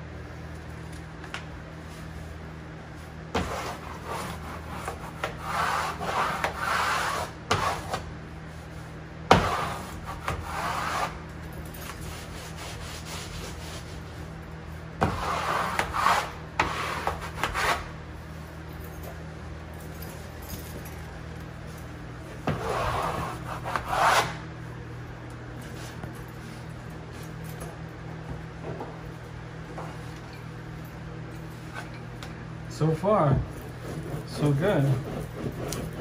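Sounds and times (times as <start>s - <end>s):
wallpaper smoother scraping cork: 3.4s - 8.1s, 9.4s - 11.2s, 15.1s - 17.9s, 22.5s - 24.4s, 33.7s - 36.0s.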